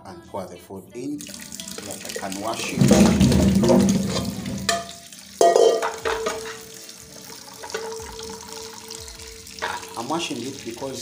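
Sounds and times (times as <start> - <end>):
tap water running: 1.2 - 11.0
bananas knocking in metal sink: 2.4 - 6.7, 7.6 - 8.3, 9.5 - 10.3.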